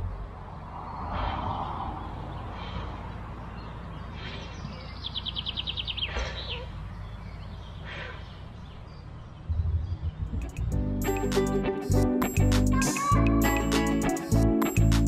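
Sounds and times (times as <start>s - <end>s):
birds singing: 0.5s - 10.8s
steady low rumble: 9.4s - 11.2s.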